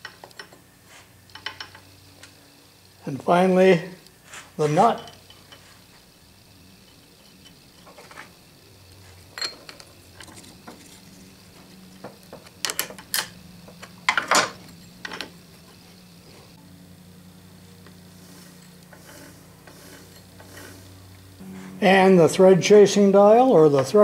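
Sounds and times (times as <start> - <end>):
wrench clinking against metal gears: 1.3 - 1.9, 4.7 - 5.7, 9.3 - 11.0, 14.0 - 15.4.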